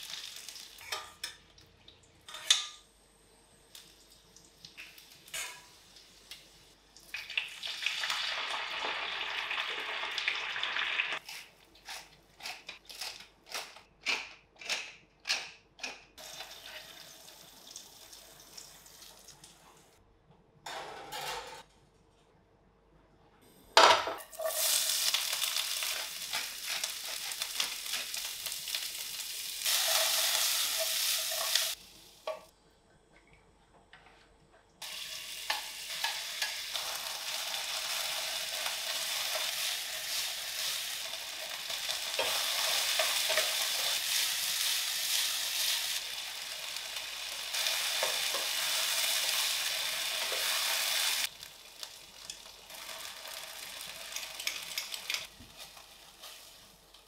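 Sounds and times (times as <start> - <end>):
food sizzling in frying pan: 0.0 - 1.0, 4.8 - 11.2, 16.2 - 19.2, 24.2 - 32.5, 34.8 - 57.0.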